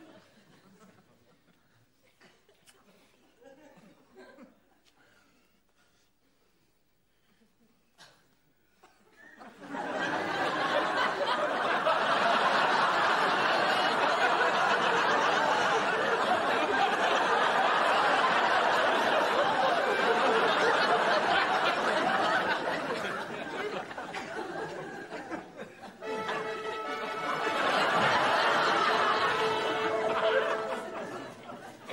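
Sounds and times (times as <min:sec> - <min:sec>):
studio audience laughing: 0:09.4 - 0:31.9.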